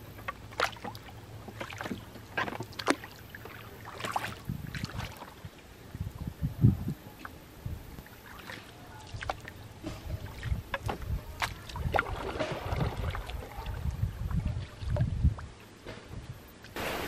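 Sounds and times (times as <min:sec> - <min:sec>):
paddle splashes and drips: 0:00.0 - 0:06.2, 0:07.1 - 0:17.0
wind rumble on microphone: 0:04.1 - 0:08.1, 0:09.1 - 0:16.6.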